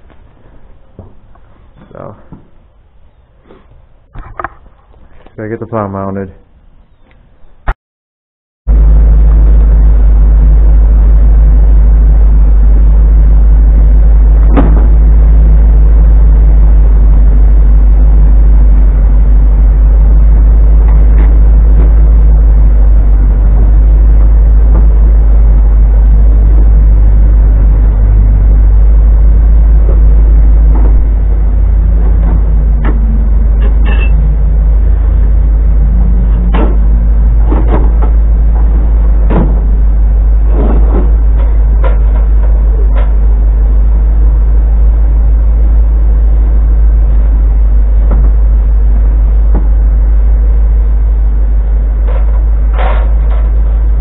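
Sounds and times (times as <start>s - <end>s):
loud low rumble: 0.0s - 3.1s, 8.7s - 54.0s
wooden crates knocking: 36.5s - 39.8s, 40.5s - 42.6s.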